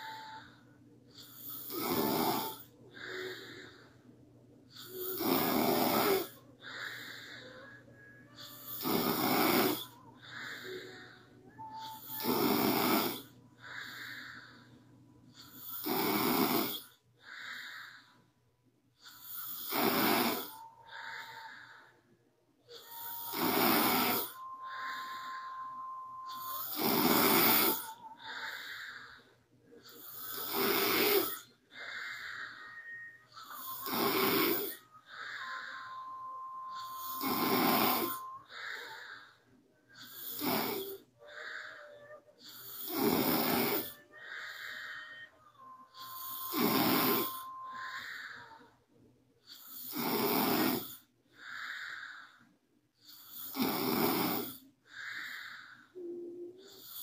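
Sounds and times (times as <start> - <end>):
woman snoring: 0.0 - 0.5, 1.2 - 3.9, 4.8 - 14.6, 15.4 - 18.1, 19.1 - 22.0, 22.7 - 48.8, 49.5 - 52.4, 53.0 - 57.0
thin whistle in breaths: 0.0 - 4.1, 6.0 - 12.7, 22.7 - 30.4, 31.0 - 48.8.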